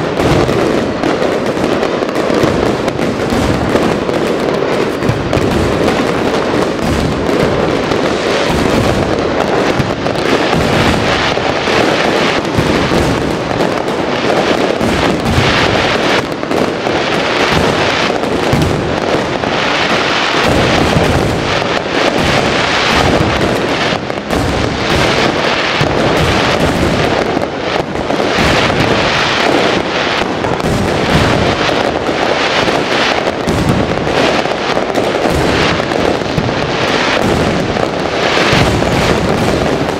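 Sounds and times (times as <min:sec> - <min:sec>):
fireworks bursting and crackling: 0:00.0 - 0:39.9.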